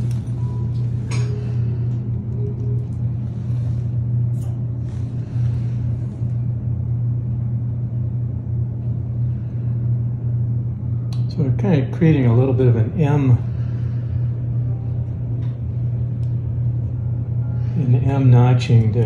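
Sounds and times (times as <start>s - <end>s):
low mechanical hum: 0.0s - 19.0s.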